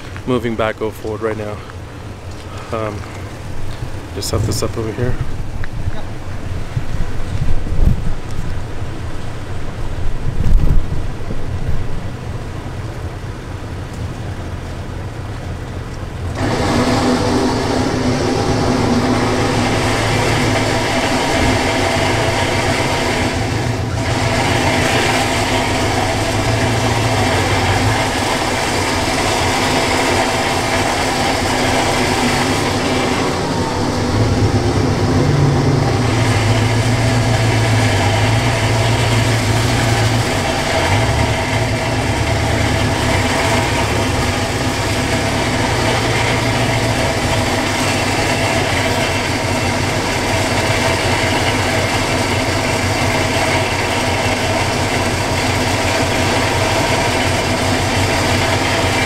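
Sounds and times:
engine idling: 0.0 - 59.0
winch reeling in line: 16.3 - 59.0.

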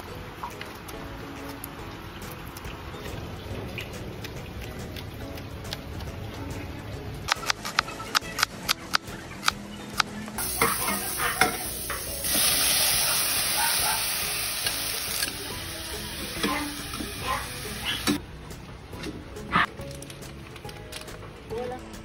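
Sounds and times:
vegetables sizzling in oil: 10.4 - 18.2
spatula clinking against pot: 10.6 - 12.1.

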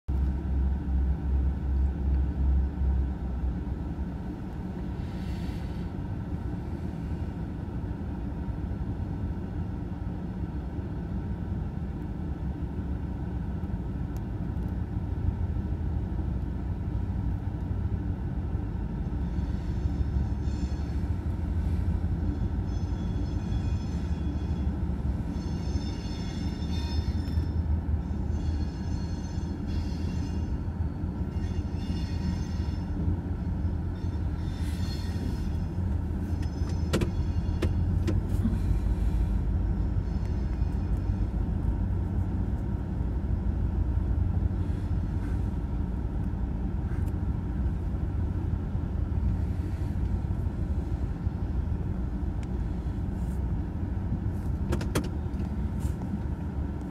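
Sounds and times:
freight train rumbling: 0.1 - 56.9
high-pitched ringing: 19.2 - 21.3, 22.2 - 37.9.

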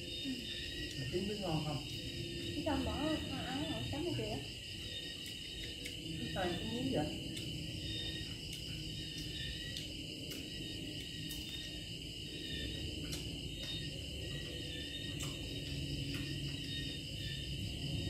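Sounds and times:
insects chirping: 0.0 - 18.0
low background hum: 0.0 - 18.0.

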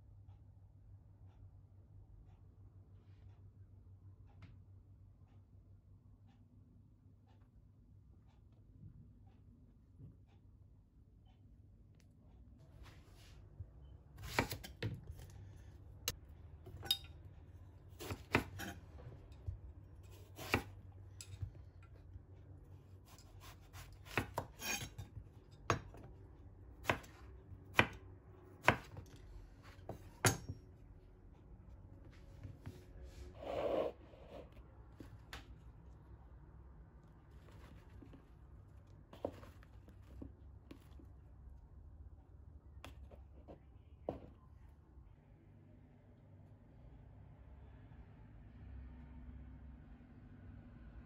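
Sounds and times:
knife chopping on wooden board: 14.2 - 15.3, 17.9 - 21.5, 23.1 - 26.1, 26.8 - 28.0, 28.6 - 30.6, 39.1 - 40.9.

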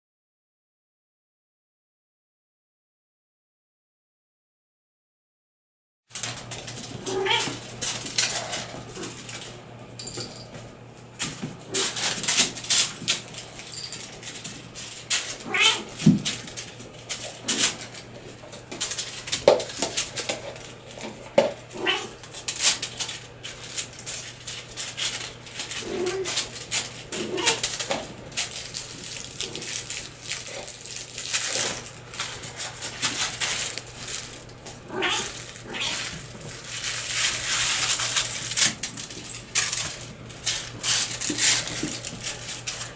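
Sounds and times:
toys and paws tapping stone floor: 6.1 - 42.9
kittens mewing: 7.0 - 7.6, 15.4 - 16.1, 21.7 - 22.2, 25.7 - 26.5, 27.1 - 28.0, 34.3 - 36.6.

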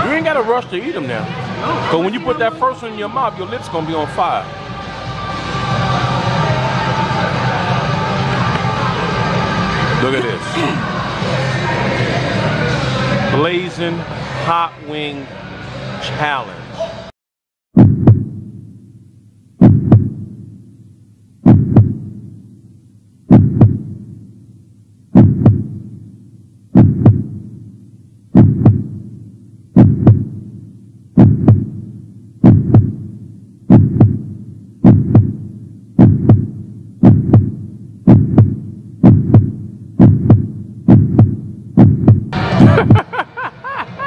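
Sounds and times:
heartbeat thumps: 17.7 - 18.6, 19.6 - 20.6, 21.4 - 22.4, 23.2 - 24.3, 25.1 - 26.0, 26.7 - 27.7, 28.3 - 43.1.

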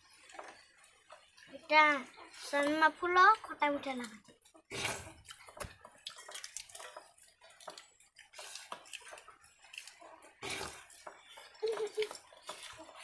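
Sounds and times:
chewing and lip smacks: 4.1 - 13.0.

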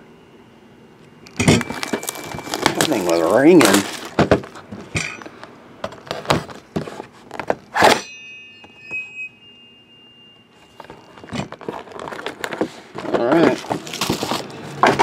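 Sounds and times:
faint high beeping tone: 0.1 - 3.8, 8.0 - 11.8
cardboard and plastic wrap rustling: 1.5 - 5.0, 10.8 - 15.0.

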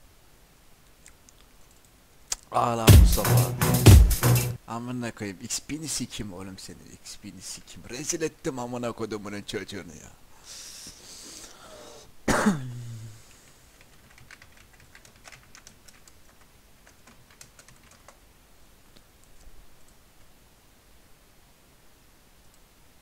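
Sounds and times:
computer keyboard key clicks: 14.1 - 16.2.

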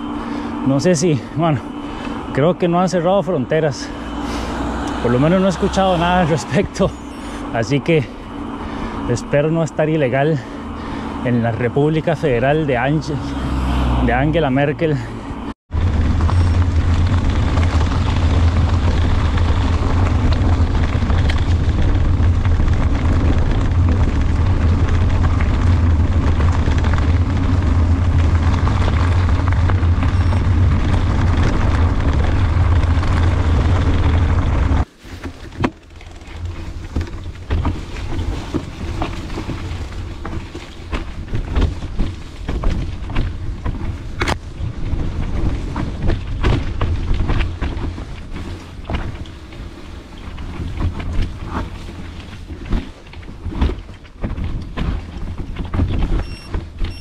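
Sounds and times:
bike clicks and rattles: 0.2 - 2.4, 14.9 - 57.0
wind buffeting microphone: 36.1 - 57.0.

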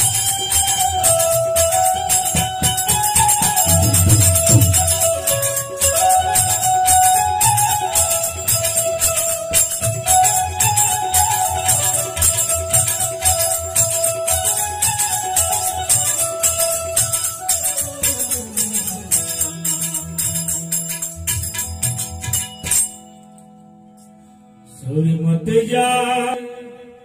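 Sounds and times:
harmonium: 0.0 - 22.8
jingling hand cymbals: 0.0 - 24.2
indian banjo melody: 0.0 - 24.3
steady drum beat: 1.6 - 7.1.

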